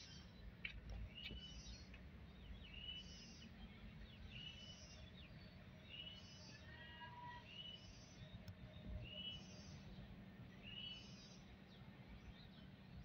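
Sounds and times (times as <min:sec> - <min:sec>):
small birds chirping: 0:00.0 - 0:06.6.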